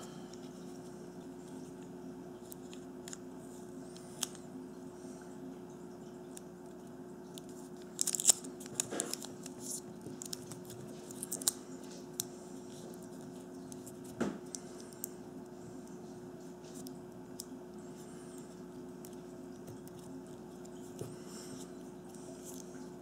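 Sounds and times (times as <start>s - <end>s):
steady low hum: 0.0s - 23.0s
adhesive tape crinkling: 7.4s - 15.1s.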